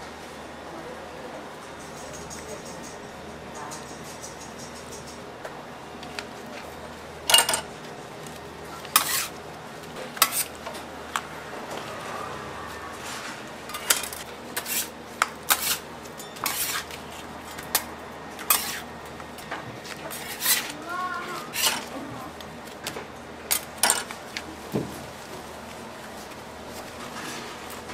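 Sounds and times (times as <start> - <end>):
metal tools clanking on steel: 7.3 - 7.7, 13.7 - 14.2.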